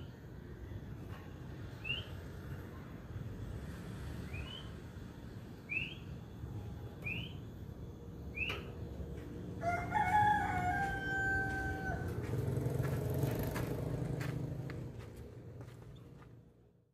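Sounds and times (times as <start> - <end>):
bird chirping: 1.8 - 2.3, 4.2 - 4.8, 5.6 - 6.2, 7.0 - 7.5, 8.3 - 8.8
rooster crowing: 9.5 - 12.8.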